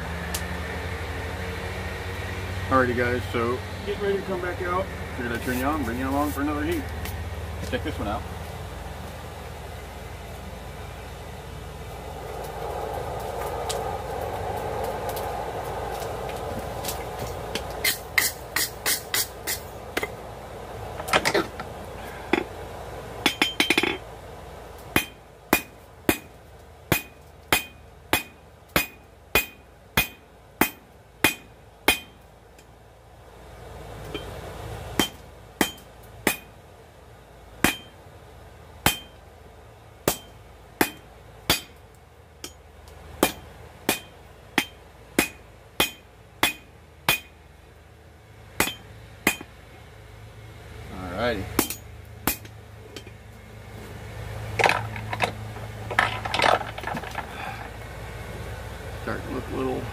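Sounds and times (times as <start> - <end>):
hammer ringing on anvil: 37.6 - 38.0, 38.9 - 39.2, 43.2 - 47.4, 48.6 - 49.5.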